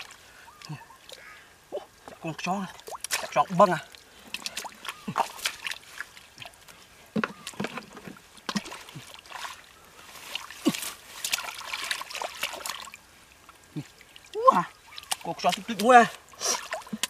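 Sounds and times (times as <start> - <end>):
hands splashing in puddle: 2.9 - 3.4, 4.3 - 6.5, 10.2 - 13.0, 15.0 - 17.0.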